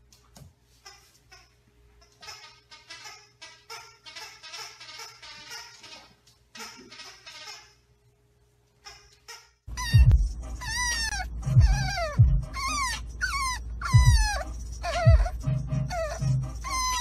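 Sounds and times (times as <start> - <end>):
puppy whining: 8.9 - 17.0.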